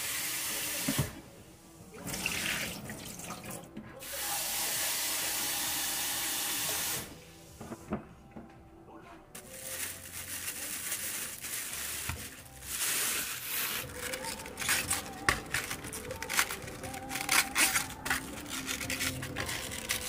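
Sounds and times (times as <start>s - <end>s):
soft background music: 0.0s - 20.0s
kitchen crinkling and crackling: 9.3s - 20.0s.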